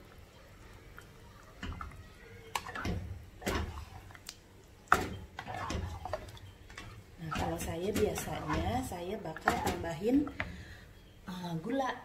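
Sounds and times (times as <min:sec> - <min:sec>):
spatula scraping cooking pot: 0:04.9 - 0:10.4.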